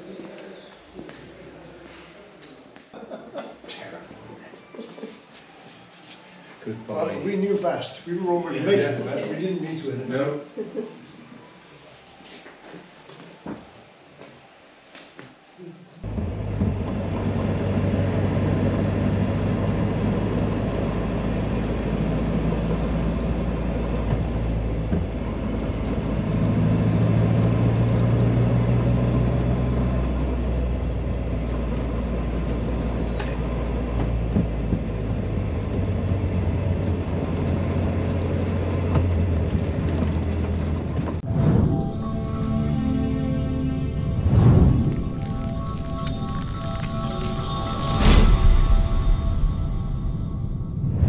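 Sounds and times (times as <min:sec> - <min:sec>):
road noise: 0:16.0 - 0:51.0
car engine running: 0:16.1 - 0:26.2.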